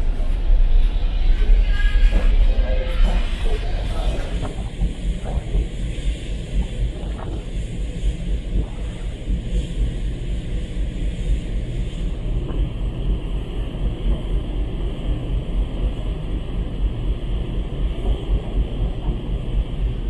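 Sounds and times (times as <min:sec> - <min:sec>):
ship engine rumble: 0:00.0 - 0:20.0
wind buffeting microphone: 0:00.0 - 0:20.0.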